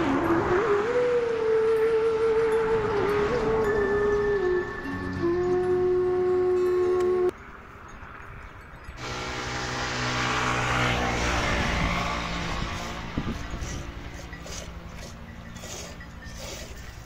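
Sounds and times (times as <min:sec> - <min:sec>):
vehicle engine passing by: 0:00.0 - 0:05.4, 0:09.0 - 0:16.1.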